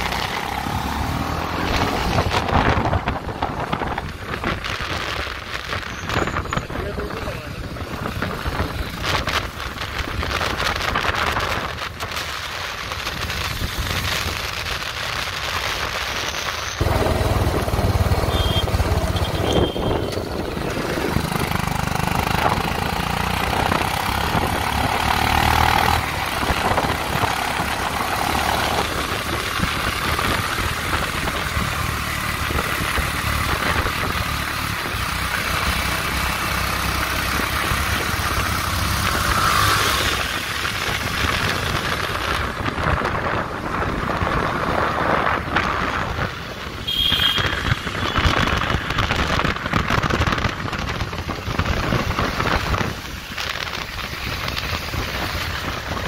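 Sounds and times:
motorcycle engines running: 0.0s - 15.8s, 16.7s - 56.0s
road and wind noise: 0.0s - 56.0s
deep engine rumble: 16.8s - 36.3s.

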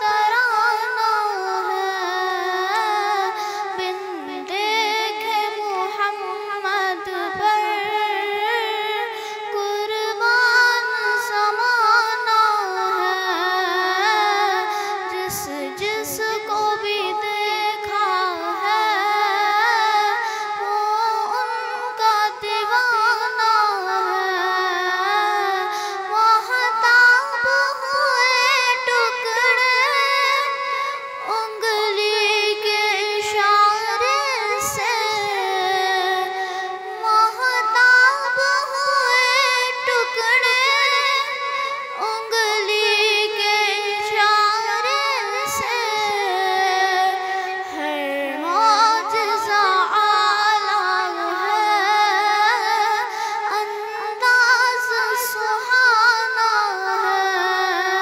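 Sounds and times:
girl singing unaccompanied: 0.0s - 58.0s.

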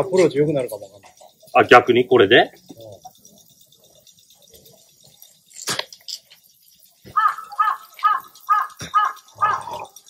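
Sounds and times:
animal calling: 7.0s - 10.0s.

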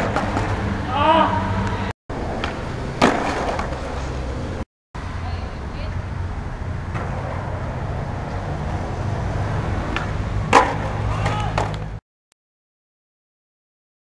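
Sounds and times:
skateboard clack: 0.0s - 0.7s, 1.7s - 4.1s, 9.8s - 12.0s
skateboard wheels rolling on concrete: 0.0s - 12.0s.

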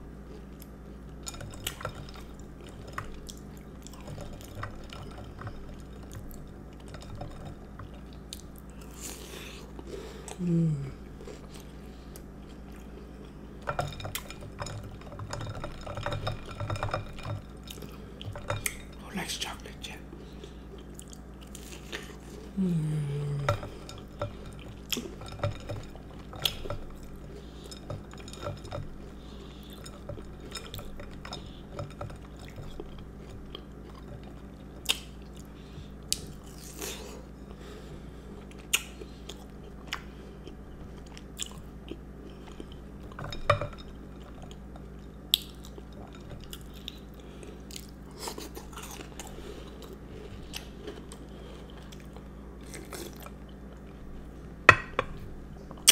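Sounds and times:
chewing and crunching cookie: 0.0s - 54.4s
low hum falling in pitch: 10.4s - 11.1s, 22.5s - 23.7s.

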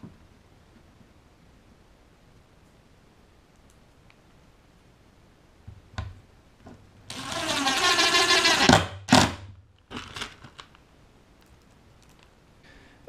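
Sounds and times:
impact driver hammering: 7.1s - 9.5s.

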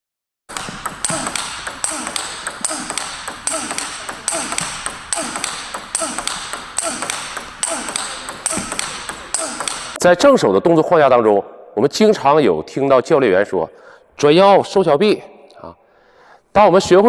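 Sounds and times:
table tennis ball rally: 0.5s - 10.0s.

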